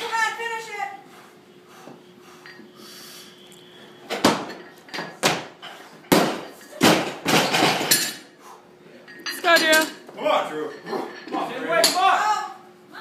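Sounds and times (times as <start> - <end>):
barbell dropped on wooden platform: 6.1 - 8.0.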